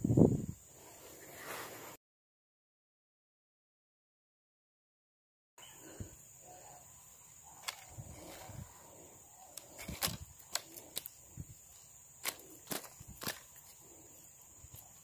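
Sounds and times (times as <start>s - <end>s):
fish flapping and knocking on wood: 12.2s - 13.5s.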